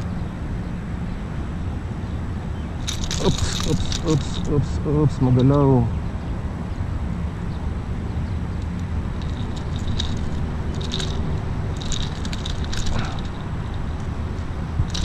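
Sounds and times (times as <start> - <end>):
steady low rumble: 0.0 - 15.0
metallic clicks and scrapes: 2.8 - 5.6, 8.6 - 15.0.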